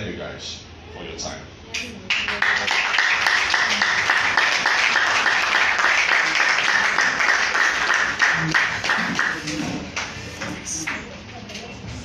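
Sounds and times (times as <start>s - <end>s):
audience applauding: 2.0s - 11.0s.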